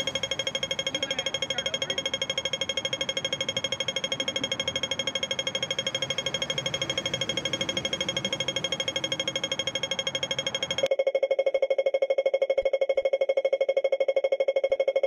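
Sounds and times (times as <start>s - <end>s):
crossing signal rapid beeps: 0.0s - 15.0s.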